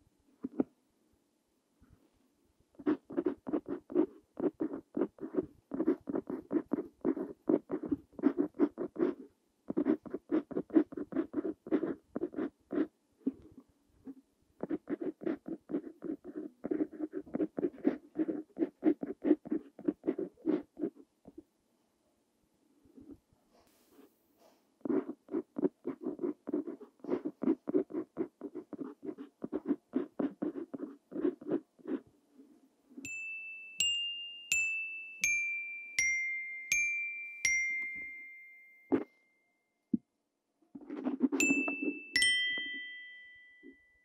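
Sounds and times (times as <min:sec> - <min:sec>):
pen nib scratching on paper: 0:02.8 - 0:21.4, 0:24.8 - 0:32.1, 0:40.7 - 0:41.4.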